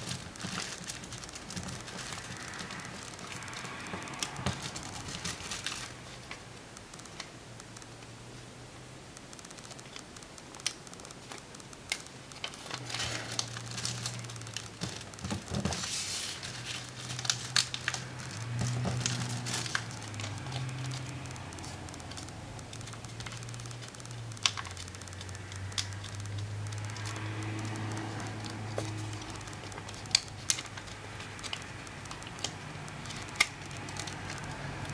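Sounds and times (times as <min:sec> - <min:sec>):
paper rustling and crinkling: 0:00.0 - 0:06.5, 0:09.5 - 0:34.9.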